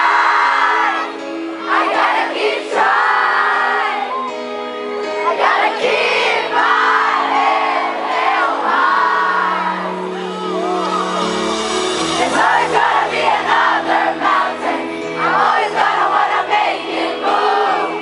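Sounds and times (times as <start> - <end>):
crowd noise: 0.0 - 18.0
live band playing: 9.4 - 17.6.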